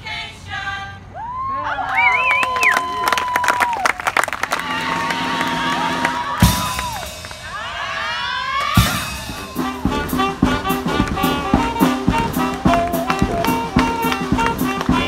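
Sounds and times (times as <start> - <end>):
live brass band music: 8.8 - 15.0.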